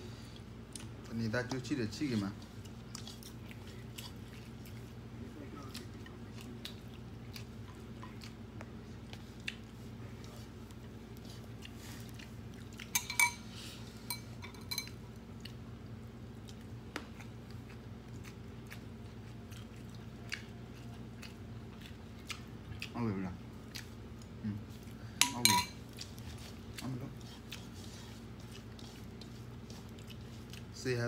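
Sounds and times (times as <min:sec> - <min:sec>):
chewing: 0:00.2 - 0:31.0
spoon clinking on bowls and jar: 0:12.9 - 0:13.4, 0:14.1 - 0:15.0, 0:25.2 - 0:25.8.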